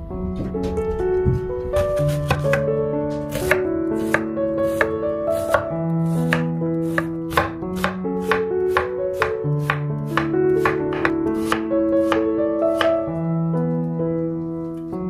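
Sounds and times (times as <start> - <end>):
background music: 0.0 - 15.0
knife slicing onion: 2.0 - 2.6, 3.3 - 13.0
knife knocking on wooden board: 8.7 - 12.2.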